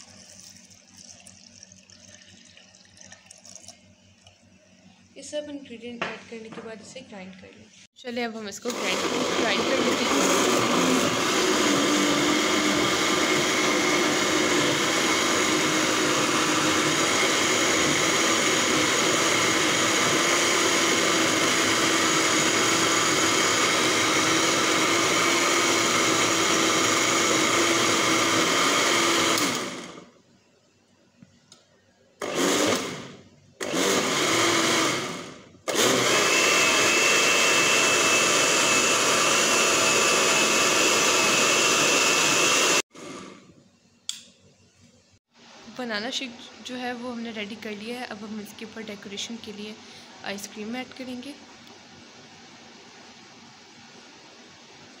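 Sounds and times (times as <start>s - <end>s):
electric blender running: 8.7s - 30.1s, 32.2s - 43.4s.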